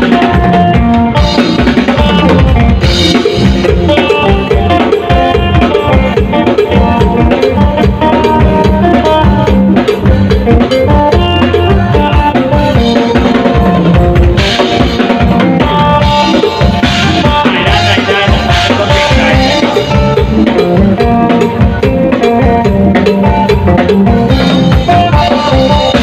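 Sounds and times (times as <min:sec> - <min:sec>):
drum kit beat: 0:00.0 - 0:26.0
electric guitar: 0:00.0 - 0:26.0
live band playing loudly: 0:00.0 - 0:26.0.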